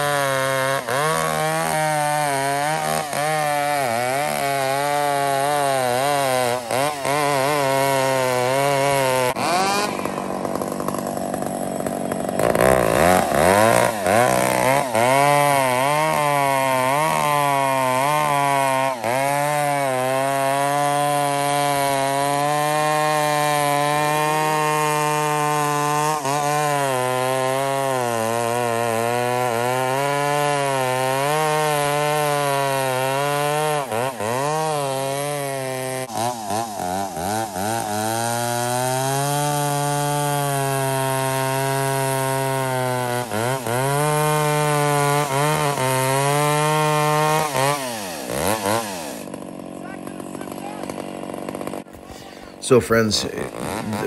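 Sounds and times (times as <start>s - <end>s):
chainsaw cutting through log: 0.0s - 54.0s.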